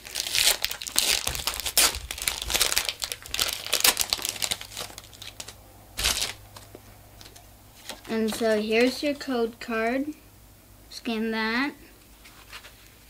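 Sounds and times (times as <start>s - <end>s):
foil wrapper crinkling: 0.0s - 9.0s.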